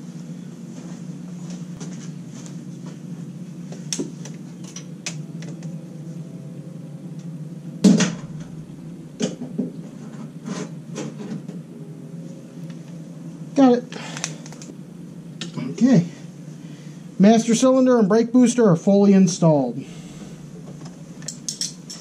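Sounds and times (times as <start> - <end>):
low background hum: 0.0 - 22.0
hand tools clinking: 21.2 - 22.0.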